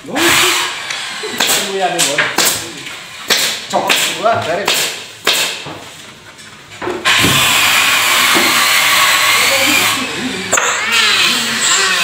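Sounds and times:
knocks on workbench: 0:06.8 - 0:07.5
electric power tool whining: 0:07.0 - 0:12.0.

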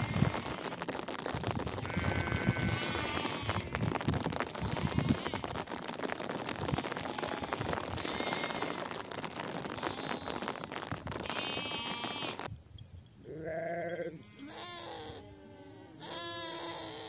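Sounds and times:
rain pattering: 0:00.0 - 0:12.5
sheep bleating: 0:01.8 - 0:03.8, 0:07.0 - 0:08.9, 0:11.2 - 0:12.4, 0:13.3 - 0:17.0.

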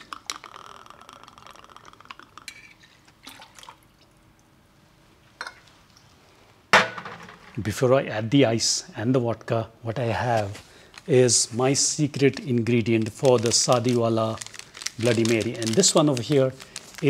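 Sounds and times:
juice pouring into metal jigger: 0:00.1 - 0:04.2.

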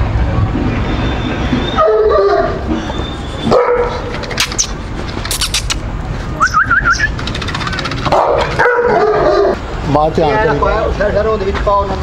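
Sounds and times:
sharp clicks or rattles: 0:04.1 - 0:05.8, 0:07.0 - 0:08.8.

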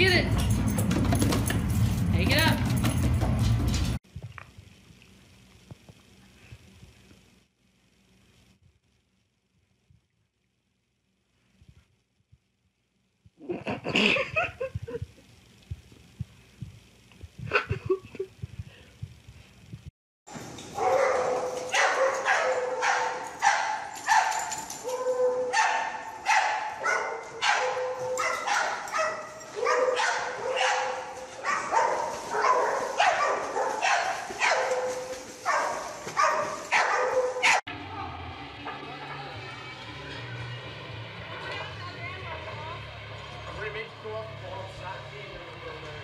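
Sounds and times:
dog barking: 0:20.8 - 0:37.6.

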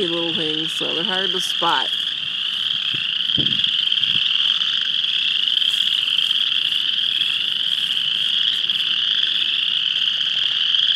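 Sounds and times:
frogs calling: 0:00.0 - 0:10.9
spring peeper chorus: 0:00.0 - 0:10.9.

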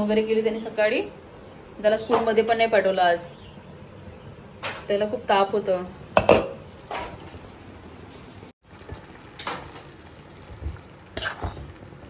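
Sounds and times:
leaves sizzling in a pan: 0:06.1 - 0:12.0.

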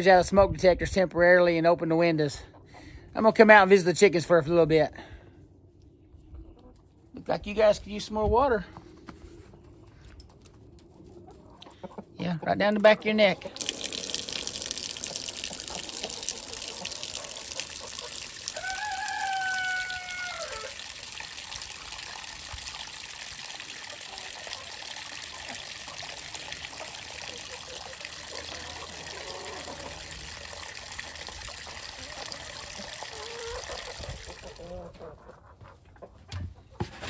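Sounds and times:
water running and trickling: 0:12.8 - 0:34.8
chicken call: 0:17.6 - 0:20.8, 0:28.4 - 0:30.1, 0:33.0 - 0:35.3.

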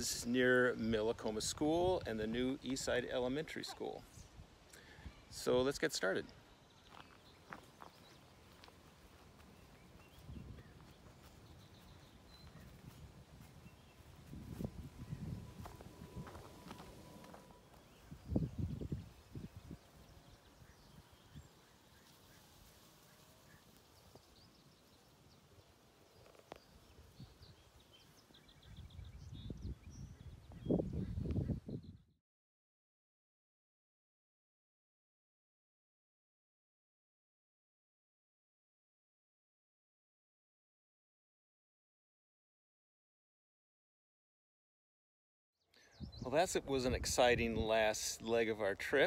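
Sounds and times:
low rumble on microphone: 0:09.8 - 0:21.6
faint bird chirps: 0:45.7 - 0:46.3.

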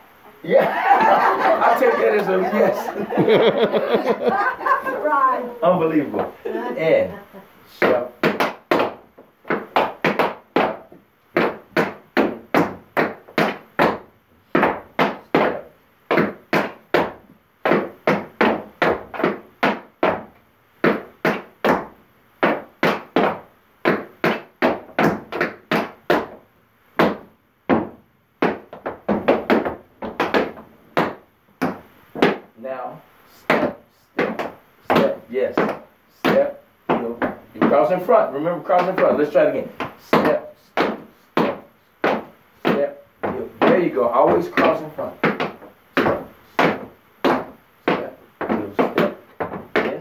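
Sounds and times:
tap shoes striking board: 0:07.8 - 0:26.4, 0:27.0 - 0:32.5, 0:33.5 - 0:38.0, 0:38.7 - 0:39.2, 0:39.8 - 0:50.0.

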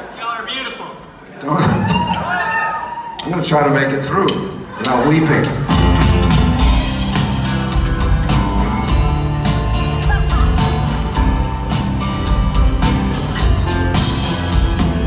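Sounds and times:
keyboard: 0:03.8 - 0:15.0
drums keeping steady beat: 0:04.2 - 0:15.0
electric and acoustic guitars: 0:05.4 - 0:15.0.

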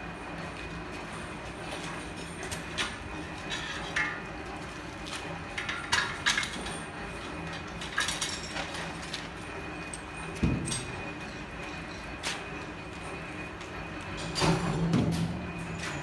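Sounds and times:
metallic clinks and clanks: 0:07.8 - 0:12.2.

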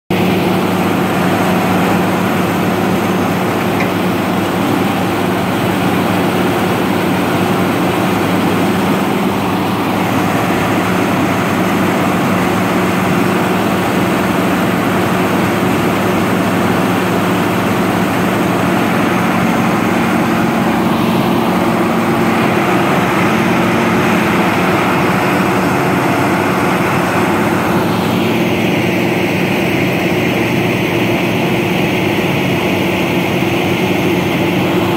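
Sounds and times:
diesel engine droning: 0:00.1 - 0:34.9.

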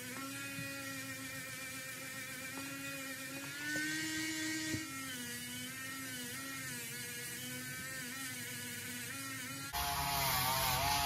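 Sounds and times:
rotary tool motor whine: 0:00.0 - 0:11.0.

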